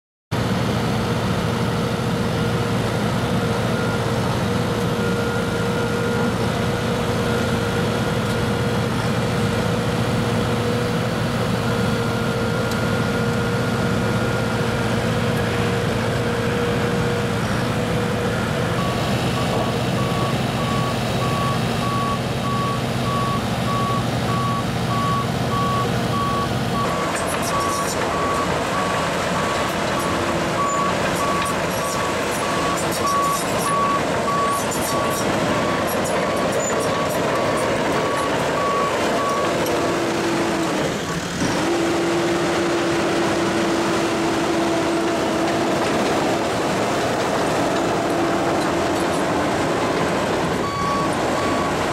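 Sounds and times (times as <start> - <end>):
bulldozer diesel engine running: 0.3 - 51.9
reversing alarm beeping: 17.5 - 41.3, 49.8 - 51.9.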